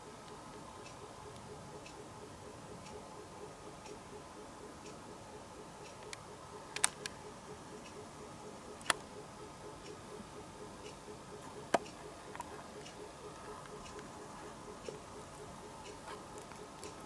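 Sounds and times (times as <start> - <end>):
sharp clicks: 5.8 - 7.2, 10.8 - 14.2.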